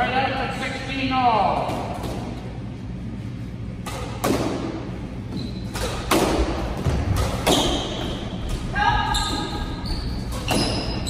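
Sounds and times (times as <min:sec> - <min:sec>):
squash ball knocks: 0:03.8 - 0:04.9, 0:05.7 - 0:08.6.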